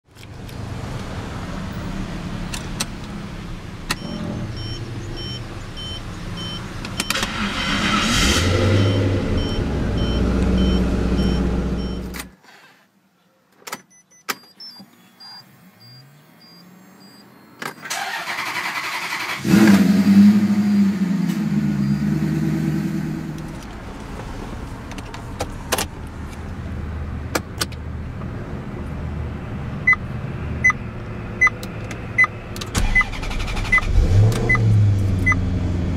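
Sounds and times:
car engine cranking and starting: 2.4 - 12.4, 17.6 - 26.0, 31.4 - 35.9
two-tone warning beeps: 4.0 - 7.2, 8.8 - 12.1, 13.8 - 17.9
short door-open warning beeps: 13.8 - 17.9.

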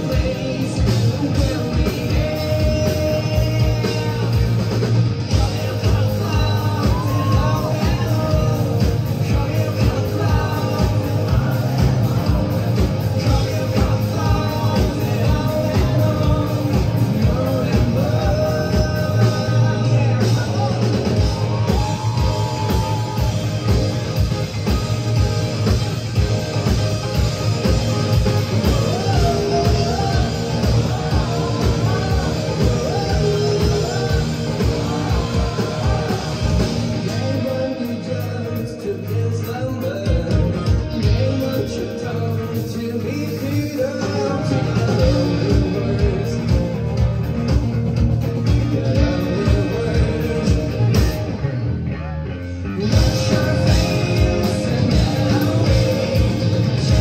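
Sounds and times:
steady drum beat: 0.0 - 42.3, 43.0 - 51.4, 52.8 - 57.0
lead singer: 0.0 - 57.0
rock band playing live: 0.0 - 57.0.

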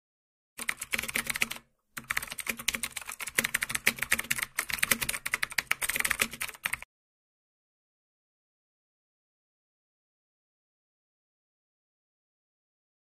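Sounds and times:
rapid keyboard typing: 0.6 - 6.9.

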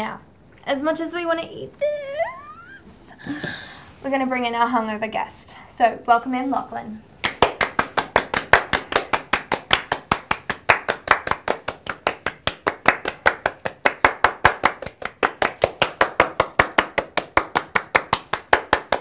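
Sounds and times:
hands clapping fast: 7.2 - 19.0.

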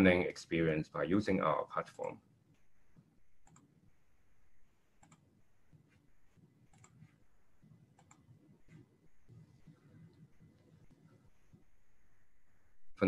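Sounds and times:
computer mouse clicks: 3.0 - 3.8, 5.0 - 5.3, 6.7 - 7.2, 7.9 - 11.6.

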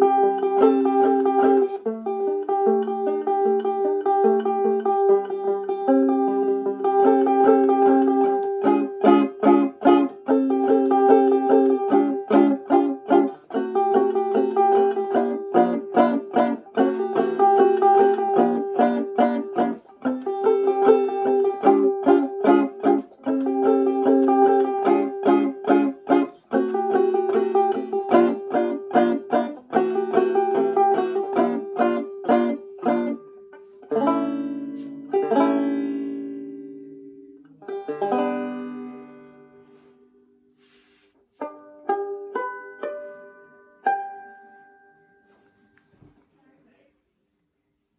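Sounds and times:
banjo playing hoedown tune: 0.0 - 45.4.

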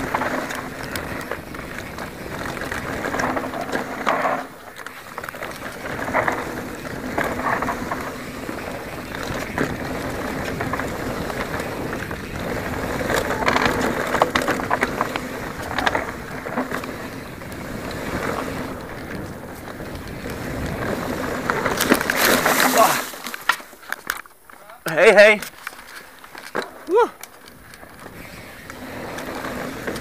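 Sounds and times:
bike rattling clicks and knocks: 0.0 - 30.0
tyre rumble over dirt: 0.0 - 30.0
wind rush on microphone: 5.3 - 23.2.

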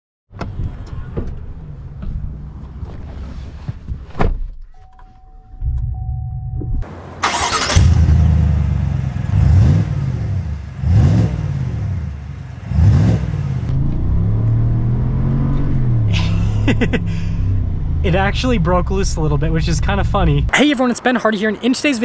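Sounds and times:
truck engine revving: 6.8 - 20.5
engine starting with loud flare: 7.2 - 8.5.

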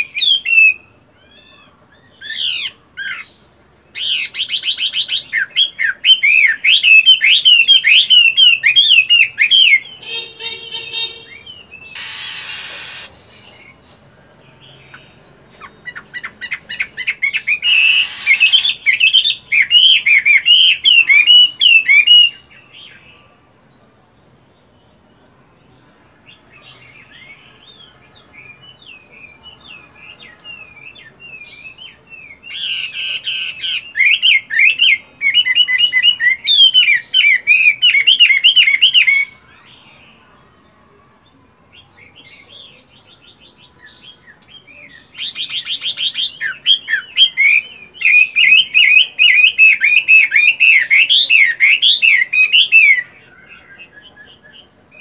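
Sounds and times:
bird singing whistled phrases: 0.0 - 1.4, 3.9 - 13.7, 15.1 - 23.0, 26.6 - 39.7, 43.5 - 55.0.

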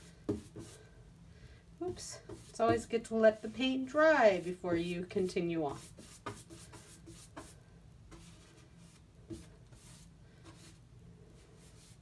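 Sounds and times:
paintbrush scratching on canvas: 2.2 - 10.8.

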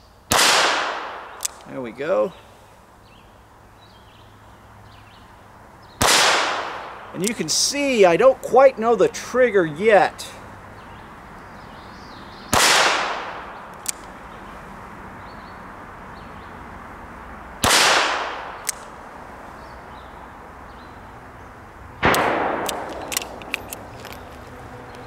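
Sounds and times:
revolver shots with echo: 6.0 - 7.0, 12.5 - 13.6, 22.0 - 23.4.

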